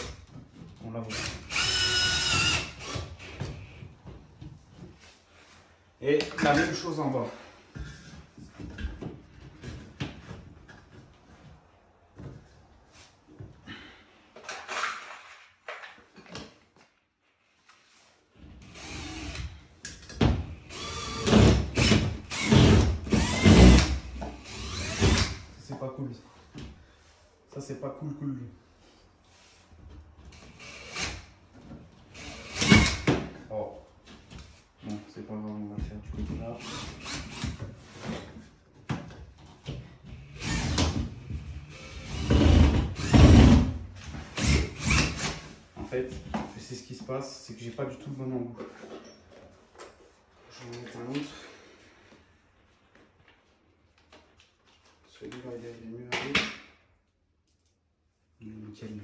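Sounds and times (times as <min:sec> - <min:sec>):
cordless drill driving screw: 0:01.1 - 0:03.7, 0:18.6 - 0:19.5, 0:20.6 - 0:25.4, 0:30.3 - 0:31.3, 0:32.1 - 0:33.1, 0:36.5 - 0:37.6, 0:40.1 - 0:43.4, 0:44.3 - 0:45.4.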